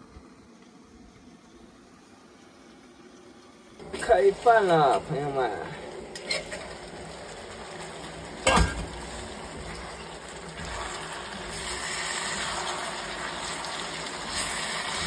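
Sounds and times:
stir-fry sizzling in a frying pan: 0:03.8 - 0:15.0
metal lid clanking: 0:08.4 - 0:09.0.

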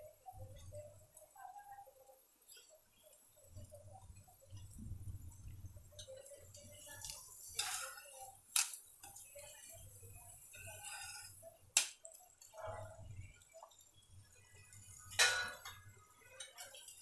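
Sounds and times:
metal spatula scraping a pan: 0:05.9 - 0:11.6, 0:14.9 - 0:17.0.

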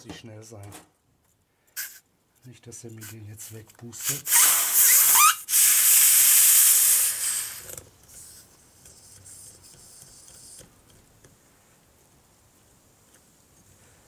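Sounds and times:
air hissing from tyre valve: 0:01.8 - 0:02.0, 0:04.0 - 0:08.4.

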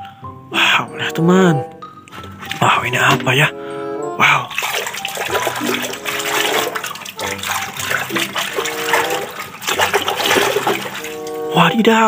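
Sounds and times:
background music: 0:00.0 - 0:12.0
water sloshing and splashing: 0:02.1 - 0:03.5, 0:04.2 - 0:11.8.

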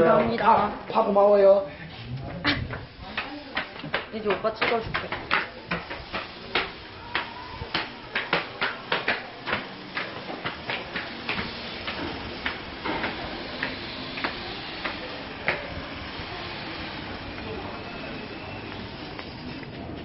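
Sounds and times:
sandals slapping on concrete stairs: 0:02.6 - 0:17.5.

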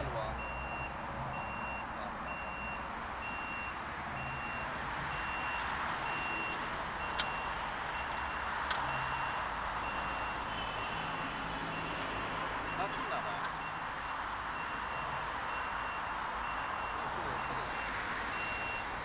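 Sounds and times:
sharp clicks: 0:06.5 - 0:08.9.

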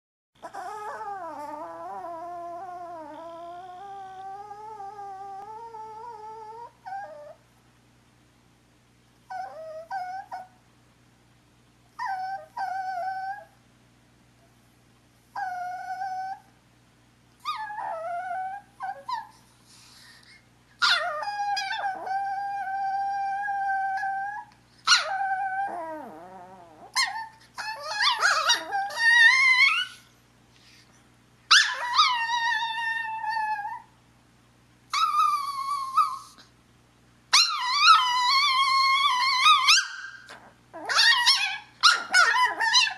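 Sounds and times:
dog whining and howling: 0:00.4 - 0:07.4, 0:09.3 - 0:10.6, 0:12.0 - 0:13.6, 0:15.3 - 0:16.6, 0:17.4 - 0:19.4, 0:20.8 - 0:30.2, 0:31.5 - 0:33.9, 0:34.9 - 0:36.5, 0:37.3 - 0:42.9.

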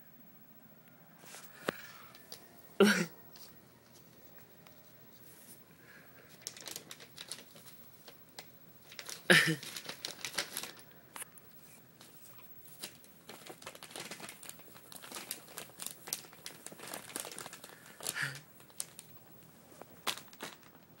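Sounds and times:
paper bag crinkling: 0:06.2 - 0:21.0.

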